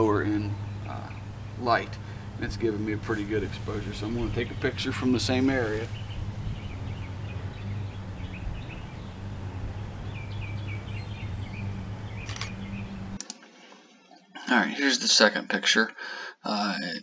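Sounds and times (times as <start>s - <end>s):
steady low hum: 0.0s - 13.2s
birds chirping: 0.0s - 13.3s
camera shutter click: 12.2s - 12.5s.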